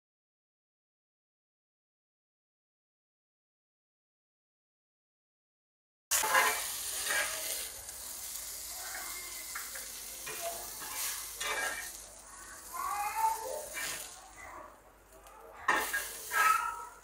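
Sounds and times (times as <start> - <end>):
metal spatula scraping a pan: 6.1 - 14.4, 15.2 - 17.0
chicken sizzling in oil: 6.1 - 17.0.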